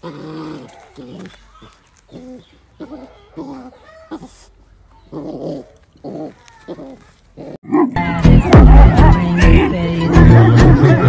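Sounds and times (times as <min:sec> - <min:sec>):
puppies yelping: 0:00.0 - 0:07.6.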